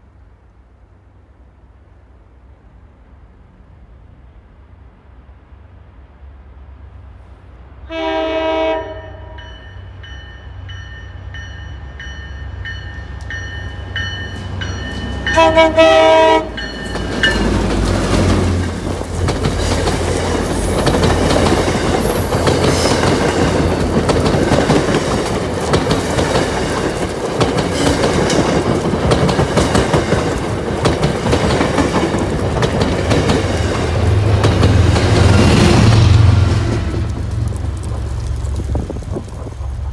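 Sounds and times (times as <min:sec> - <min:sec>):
train wheels clattering on rails: 0:09.4 - 0:39.9.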